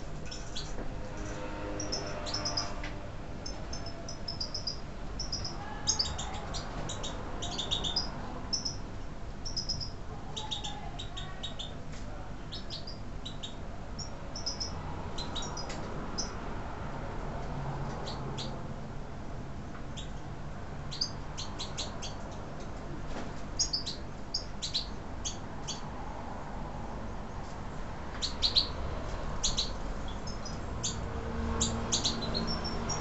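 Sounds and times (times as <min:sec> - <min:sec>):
goldfinches twittering: 0:01.8 - 0:02.8, 0:03.4 - 0:08.8, 0:09.4 - 0:11.7, 0:12.6 - 0:16.4, 0:28.2 - 0:28.8, 0:29.4 - 0:31.0, 0:31.6 - 0:33.0.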